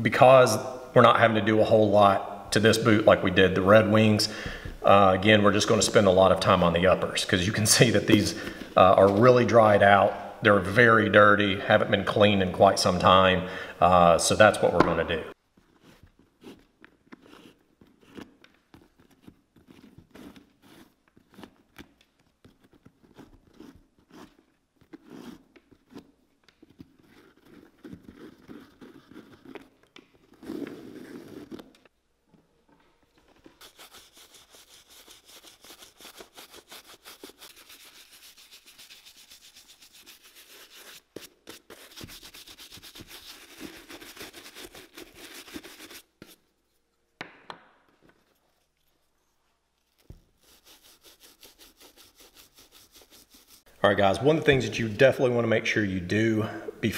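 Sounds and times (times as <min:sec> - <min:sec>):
laces rubbing through eyelets: 0:14.4 - 0:31.9, 0:33.3 - 0:46.8, 0:48.2 - 0:53.7
fast scratching: 0:33.6 - 0:46.4, 0:50.4 - 0:53.7.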